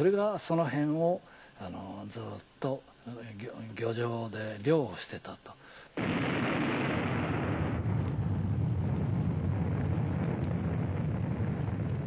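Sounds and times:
explosion deep rumble: 6.0 - 12.0.

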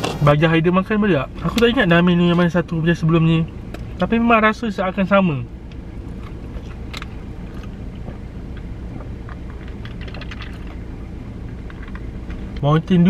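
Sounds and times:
steady low hum: 0.0 - 13.0
person chewing crunchy food: 6.1 - 10.8.

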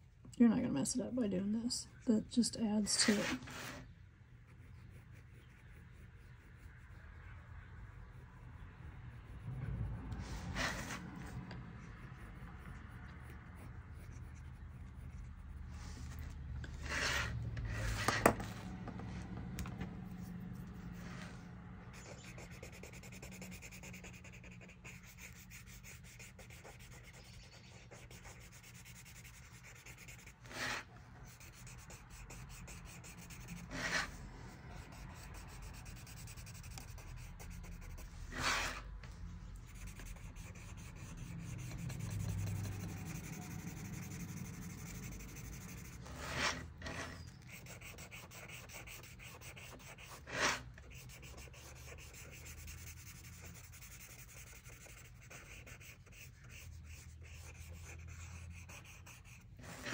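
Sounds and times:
blending stump rubbing on paper: 39.6 - 59.9.

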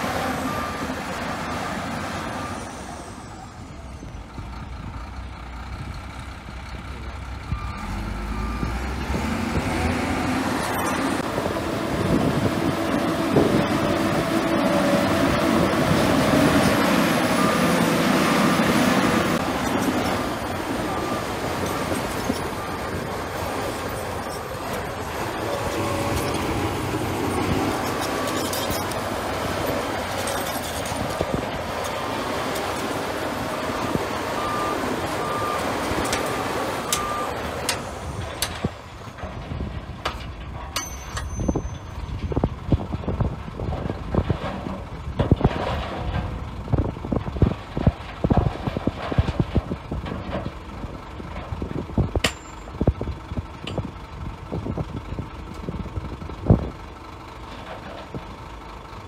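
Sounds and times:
heavy machinery engine: 0.0 - 59.0
reversing alarm beeping: 7.5 - 11.2, 16.7 - 24.5, 33.7 - 37.5
irregular clanks and knocks: 37.7 - 50.7.

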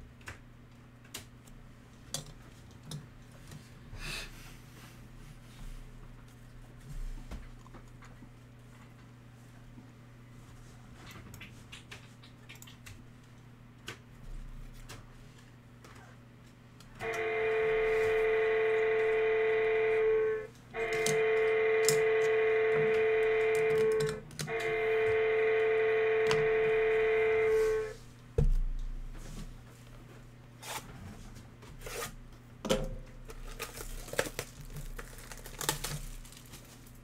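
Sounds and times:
electronic horn blasts: 17.0 - 28.0
plastic wrap crinkling: 33.3 - 37.0.

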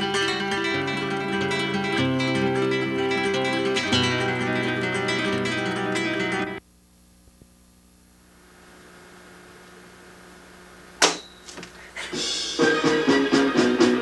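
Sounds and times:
strummed flamenco guitar: 0.0 - 6.6, 12.1 - 14.0
faint low hum: 6.6 - 12.0.

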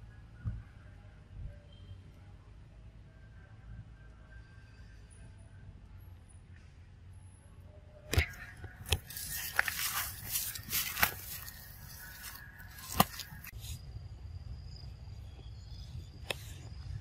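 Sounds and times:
faint steady high tone: 0.0 - 6.5
dry leaves rustling and crackling: 8.2 - 13.5.

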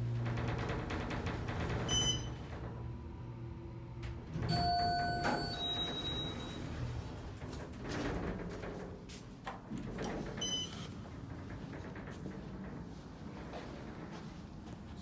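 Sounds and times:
elevator doors sliding open: 0.0 - 14.5
elevator two-tone chime: 4.4 - 6.8.

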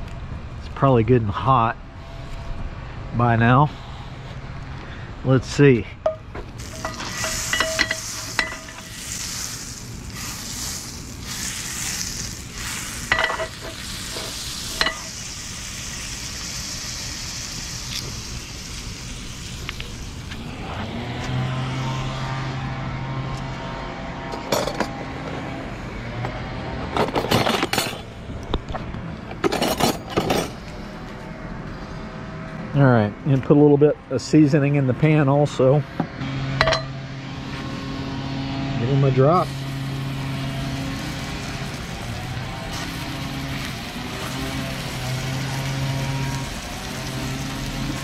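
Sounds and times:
butter sizzling in a skillet: 6.5 - 20.3, 39.4 - 48.0.

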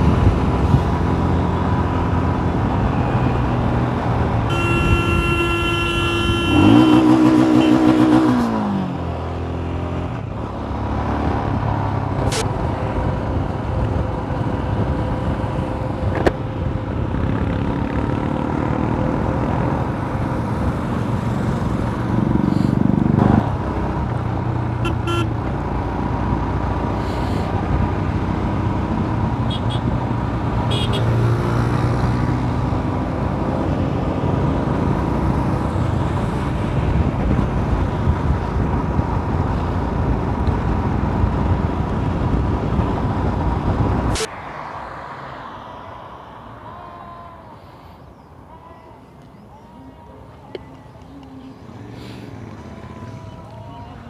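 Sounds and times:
wind rush on microphone: 0.0 - 5.4, 34.3 - 44.3
short horn toots: 4.5 - 7.9.

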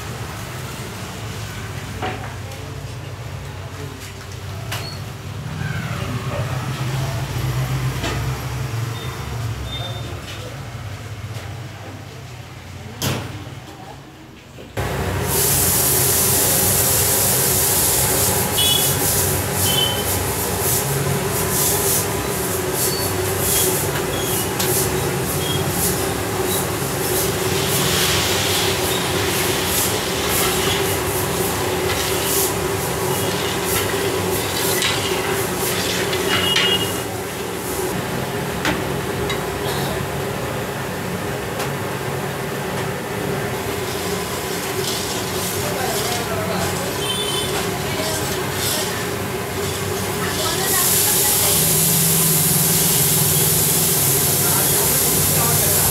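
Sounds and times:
gas burner roaring: 0.0 - 13.4, 14.8 - 55.9
metal spatula scraping pan: 31.7 - 37.0.

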